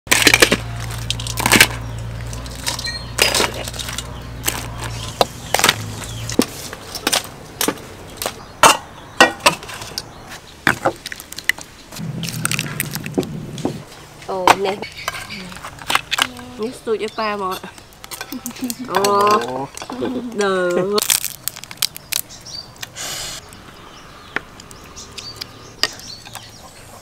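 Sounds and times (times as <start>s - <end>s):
low steady hum: 12.0s - 15.6s
metal utensils clinking on wok: 17.0s - 20.9s.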